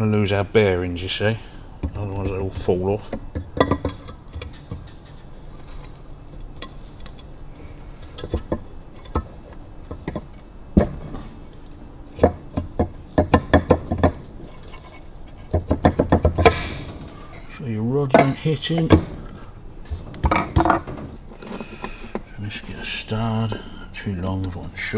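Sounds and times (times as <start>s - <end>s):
metal parts clinking and knocking: 3.1s - 5.3s.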